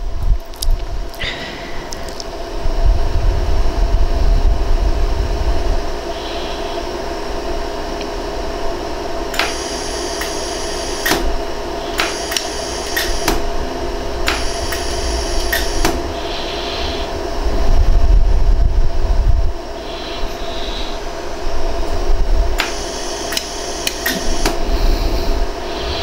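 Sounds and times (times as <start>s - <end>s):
low rumble: 0.0s - 9.2s, 13.4s - 22.6s
machine steady hum: 0.0s - 26.0s
laser welder clicks: 9.3s - 13.5s, 14.2s - 16.1s, 22.6s - 24.6s.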